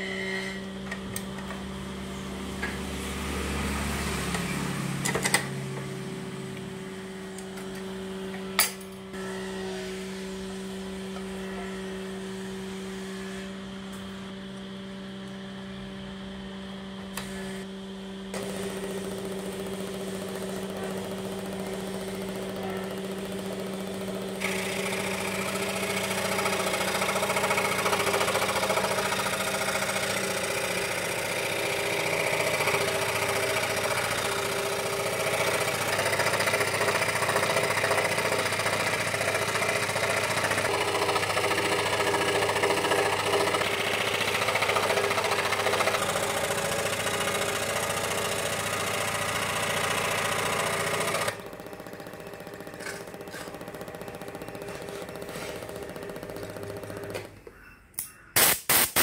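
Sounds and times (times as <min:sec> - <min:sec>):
scroll saw cutting board: 0:52.7 - 0:53.8, 0:54.4 - 0:57.2.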